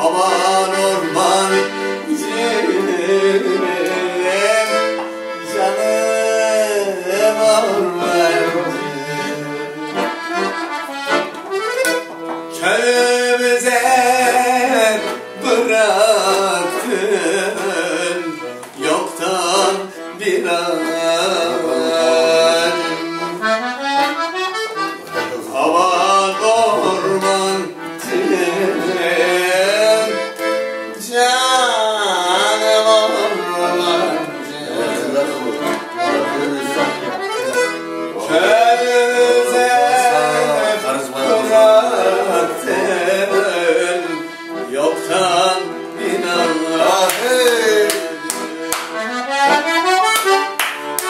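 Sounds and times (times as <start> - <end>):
accordion melody: 0.0 - 51.0.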